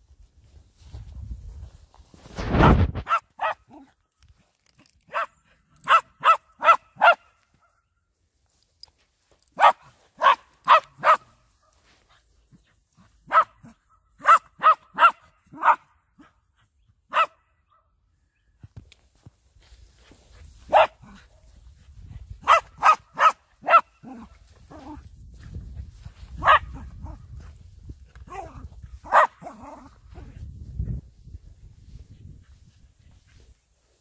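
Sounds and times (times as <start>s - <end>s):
small dog yapping: 26.4s - 27.2s.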